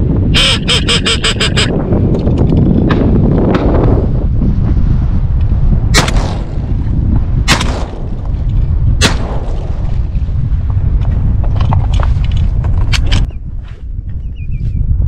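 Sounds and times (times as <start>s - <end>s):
wind buffeting microphone: 0.0s - 15.0s
shotgun shots: 5.9s - 6.7s, 7.4s - 8.3s, 9.0s - 10.0s.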